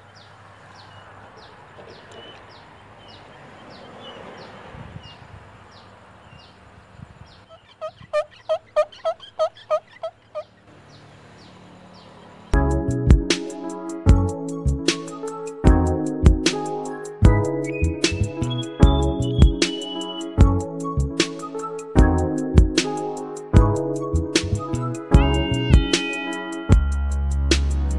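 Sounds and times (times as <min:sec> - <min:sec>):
fowl calling: 0:00.0 - 0:04.6, 0:05.7 - 0:12.3
small bird chirping: 0:00.0 - 0:12.6, 0:17.6 - 0:20.4
faint outdoor noise: 0:00.0 - 0:27.9
music: 0:12.6 - 0:27.9.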